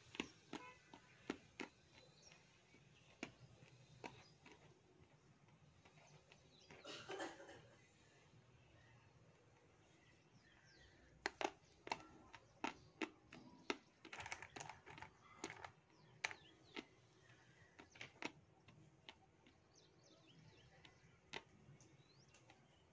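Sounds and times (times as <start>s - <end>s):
clay crunching as chewed: 10.4s - 19.7s.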